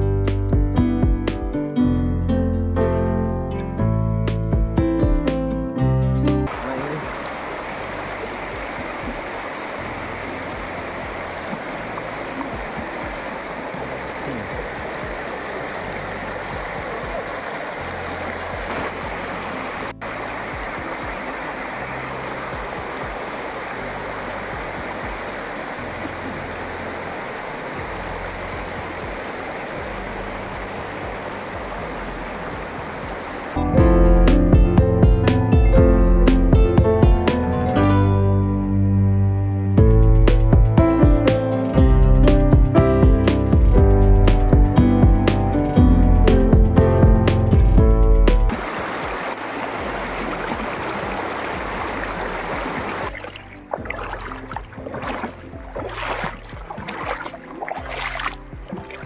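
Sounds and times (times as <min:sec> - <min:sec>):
flowing water rushing: 0:06.4 - 0:33.8, 0:48.5 - 0:59.0.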